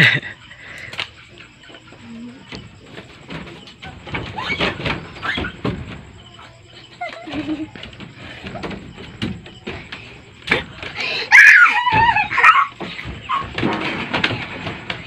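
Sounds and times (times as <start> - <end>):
scuffling: 0.9 - 15.0
children squealing and laughing: 4.1 - 5.7, 6.3 - 8.8, 10.8 - 14.1.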